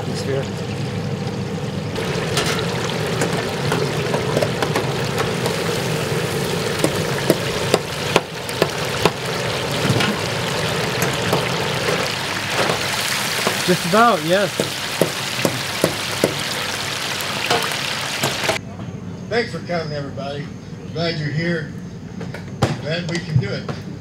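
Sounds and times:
chicken frying in hot oil: 0.0s - 18.6s.

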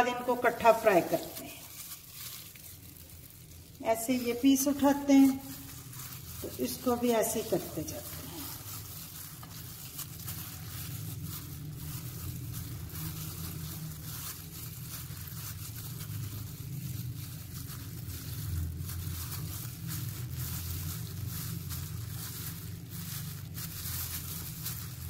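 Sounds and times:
plastic bag rustling: 0.0s - 25.0s
soft crunching of flour: 0.0s - 25.0s
steady low rumble: 0.0s - 25.0s.

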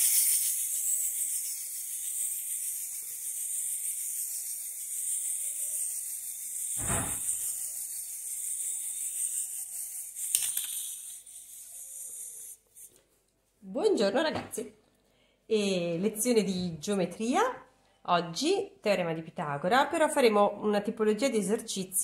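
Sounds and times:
wind-up toy motor whirring: 0.0s - 12.9s
thump: 6.8s - 7.4s.

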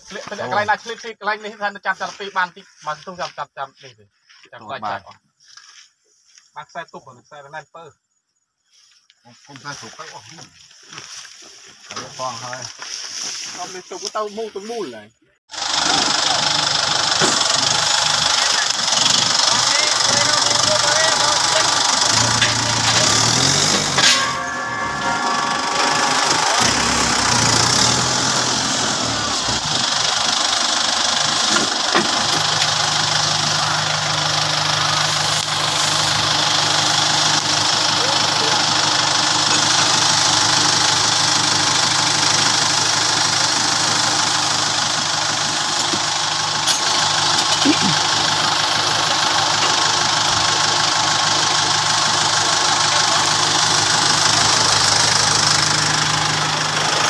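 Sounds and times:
tractor engine idling: 0.0s - 4.0s, 8.6s - 57.0s
engine knocks: 15.5s - 57.0s.

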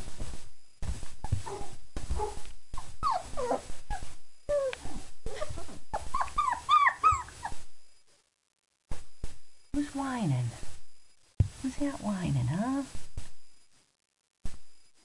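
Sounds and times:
puppies whining and yelping: 1.2s - 7.7s.

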